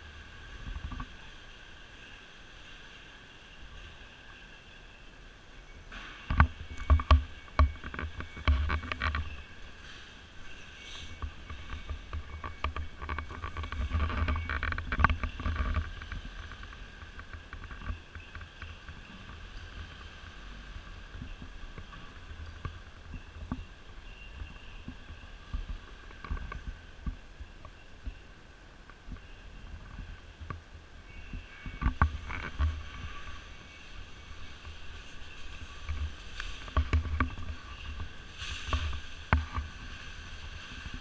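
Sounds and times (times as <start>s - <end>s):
action camera knocks and rumble: 6.2s - 9.4s.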